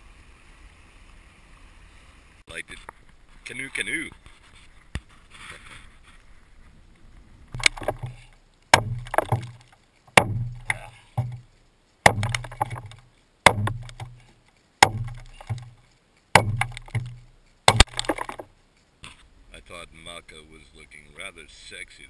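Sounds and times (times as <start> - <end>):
low rumble from log: 7.6 - 11.4, 12.1 - 15.8
adze chopping wood: 7.6 - 15.8, 16.4 - 18.5.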